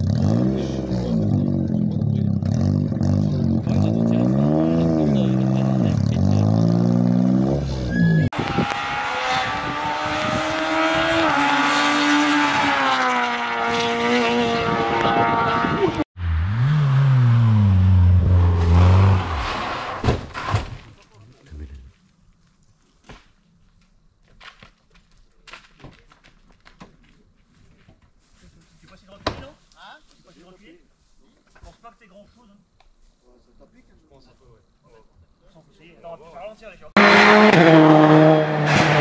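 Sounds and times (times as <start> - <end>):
rally car engines revving: 0.0 - 20.6, 37.0 - 39.0.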